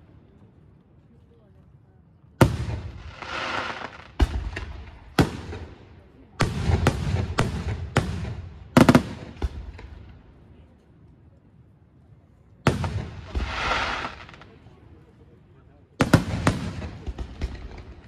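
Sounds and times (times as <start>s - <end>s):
firework bangs: 2.4s - 10.2s, 12.6s - 14.6s, 16.0s - 18.0s
firework hissing: 3.0s - 4.2s, 13.3s - 14.4s.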